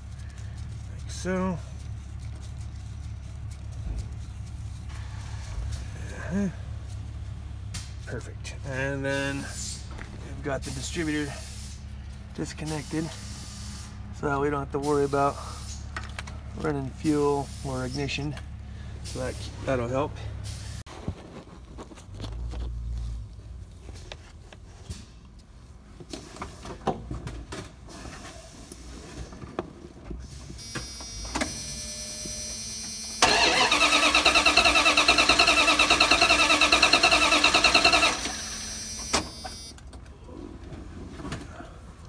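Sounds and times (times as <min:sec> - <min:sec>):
engine cranking without starting: 0:33.2 - 0:39.5.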